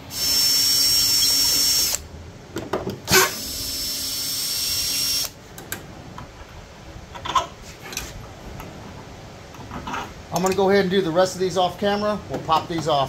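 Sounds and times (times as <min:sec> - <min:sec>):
drill motor whining: 0:00.0 - 0:02.0, 0:03.1 - 0:05.4.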